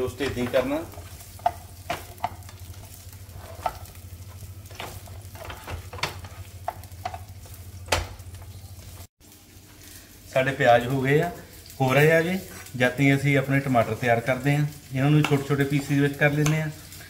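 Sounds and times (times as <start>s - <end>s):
onions sizzling lightly: 0.0s - 17.0s
spatula scraping and tapping pan: 0.1s - 8.6s, 15.2s - 16.7s.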